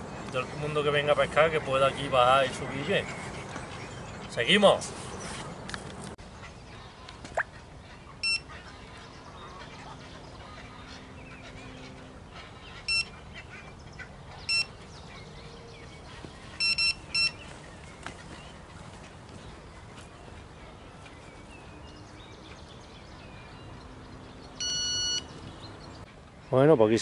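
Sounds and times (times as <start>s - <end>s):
bite alarm beeping: 8.2s - 8.5s, 12.8s - 13.2s, 14.4s - 14.8s, 16.6s - 17.4s, 24.6s - 25.3s.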